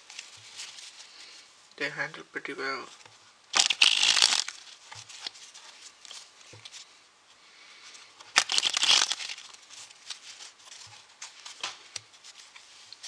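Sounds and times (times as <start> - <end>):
playing cards riffling: 3.5 - 6.8, 8.2 - 13.0.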